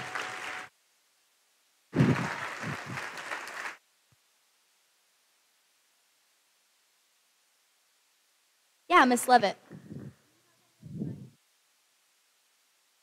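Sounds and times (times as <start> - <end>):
lapel microphone rustling on clothing: 9.6 - 11.4.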